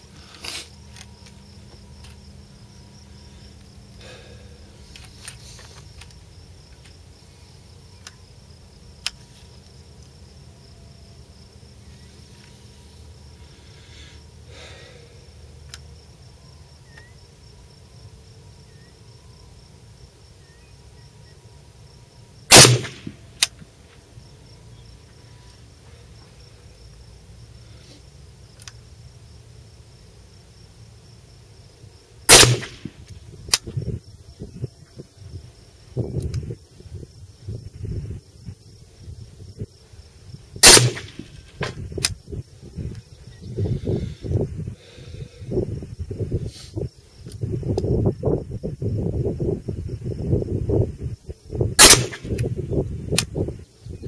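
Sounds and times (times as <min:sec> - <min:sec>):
rifle shots: 0:22.5 - 0:23.2, 0:32.3 - 0:33.0, 0:40.6 - 0:41.3, 0:51.8 - 0:52.4.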